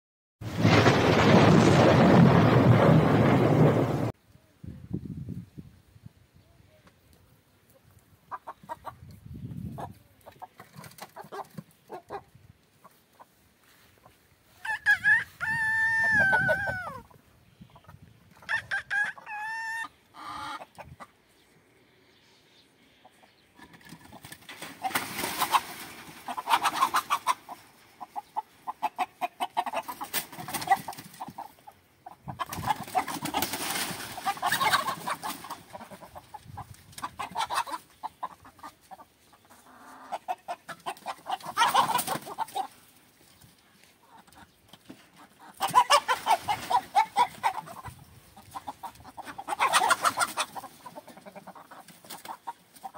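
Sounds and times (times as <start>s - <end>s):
rooster crowing: 14.6s - 17.0s.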